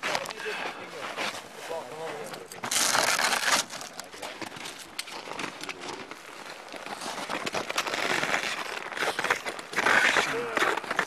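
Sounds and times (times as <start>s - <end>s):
footsteps crunching in snow: 0.0s - 4.6s.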